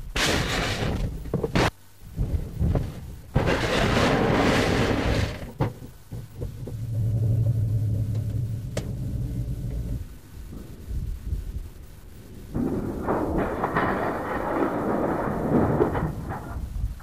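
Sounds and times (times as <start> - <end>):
steady low hum: 0.0 - 17.0
vehicle crashing and scraping: 0.1 - 10.0.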